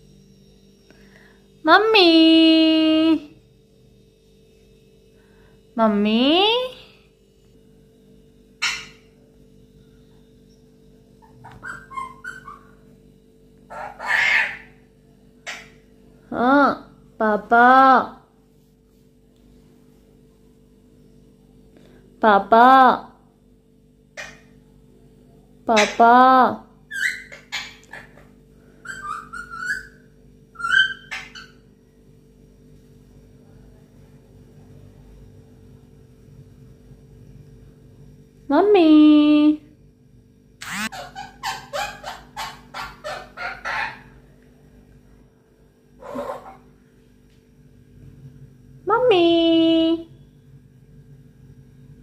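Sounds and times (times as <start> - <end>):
parakeet chattering: 8.6 - 9.1, 11.2 - 12.8, 13.7 - 14.8, 15.4 - 15.8, 24.2 - 24.5, 25.7 - 26.2, 26.9 - 30.0, 30.6 - 31.6, 40.6 - 44.2, 46.0 - 46.6
parakeet harsh squawk: 8.6 - 9.1, 11.2 - 12.8, 13.7 - 14.8, 15.4 - 15.8, 24.2 - 24.5, 25.8 - 26.0, 26.9 - 30.0, 30.6 - 31.6, 40.6 - 44.2, 46.0 - 46.6.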